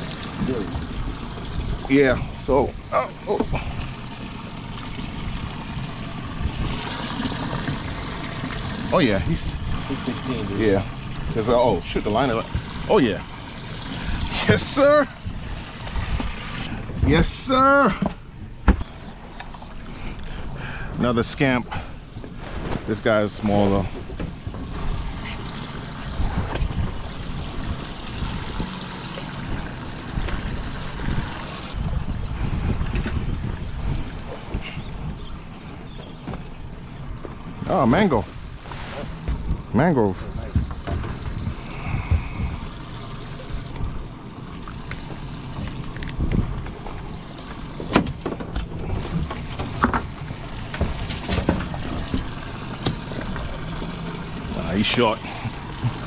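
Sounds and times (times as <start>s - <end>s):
water lapping against boat hull: 0.0s - 20.5s, 21.4s - 31.8s, 32.4s - 56.0s
low steady rumble: 0.0s - 56.0s
wind buffeting microphone: 22.4s - 42.8s.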